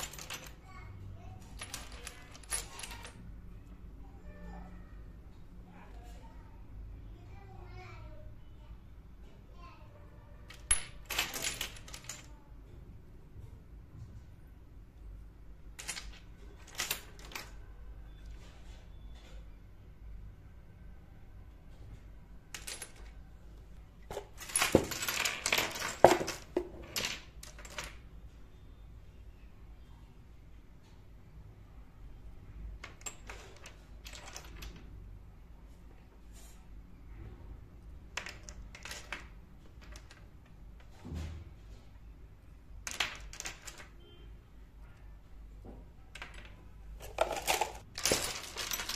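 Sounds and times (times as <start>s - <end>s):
ceramic pieces clinking: 47.0s - 48.9s.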